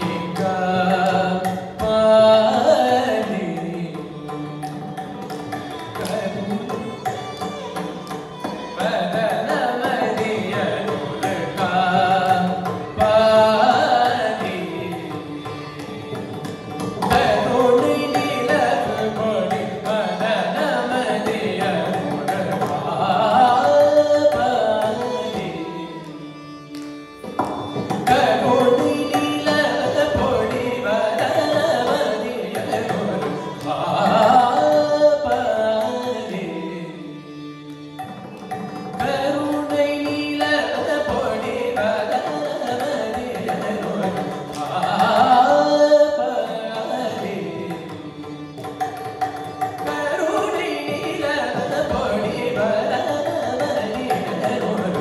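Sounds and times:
man singing: 0:00.0 - 0:04.5, 0:05.9 - 0:07.8, 0:08.4 - 0:15.9, 0:17.0 - 0:26.6, 0:27.9 - 0:37.6, 0:38.8 - 0:48.7, 0:49.7 - 0:55.0
violin: 0:00.0 - 0:55.0.

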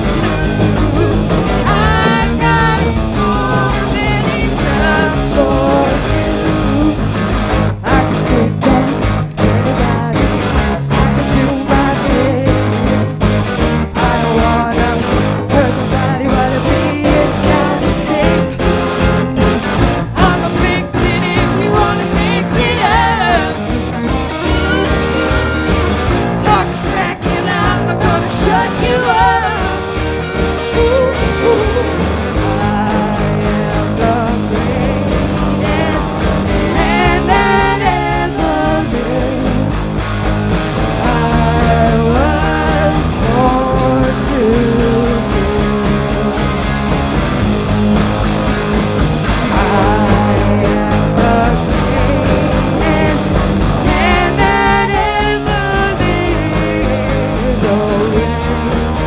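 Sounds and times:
live rock band playing: 0:00.0 - 0:59.0
wavering lead melody: 0:19.9 - 0:39.1.

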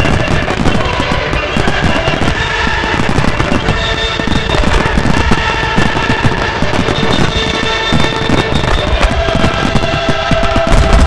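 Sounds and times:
fireworks booming: 0:00.0 - 0:11.0
music playing: 0:00.0 - 0:11.0.

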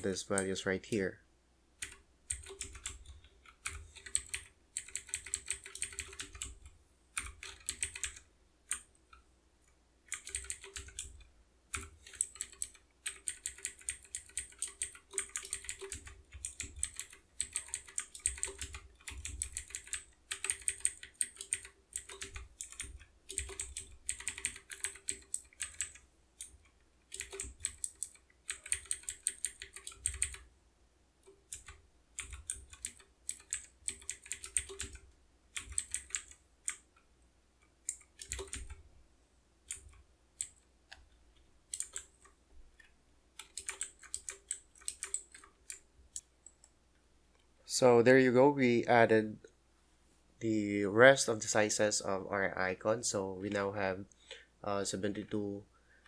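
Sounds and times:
typing on computer keyboard: 0:01.8 - 0:08.9, 0:10.1 - 0:30.5, 0:31.2 - 0:36.9, 0:37.9 - 0:38.8, 0:39.7 - 0:40.6, 0:41.7 - 0:42.3, 0:43.4 - 0:46.6.

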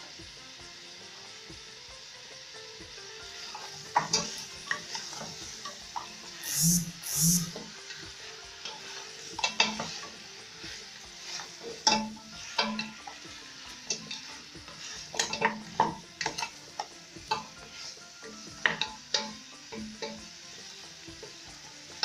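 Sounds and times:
meat and onions sizzling in pot: 0:00.0 - 0:22.0.

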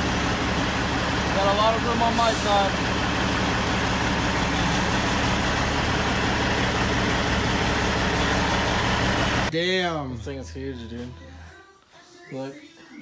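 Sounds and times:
diesel truck engine running: 0:00.0 - 0:09.5.

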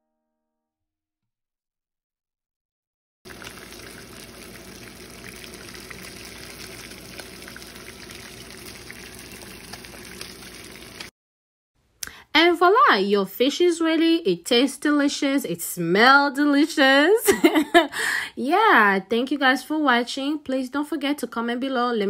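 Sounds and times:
fish frying in hot oil: 0:03.3 - 0:11.1.

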